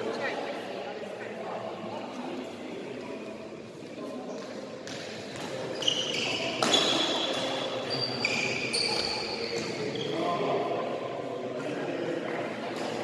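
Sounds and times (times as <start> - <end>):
shoes squeaking on court floor: 3.9 - 10.4.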